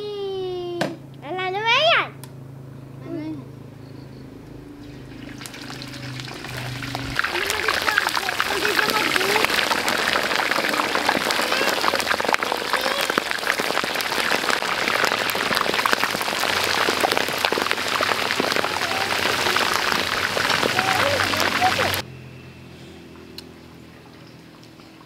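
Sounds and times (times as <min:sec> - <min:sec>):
meat deep-frying in oil: 0:04.8 - 0:22.0.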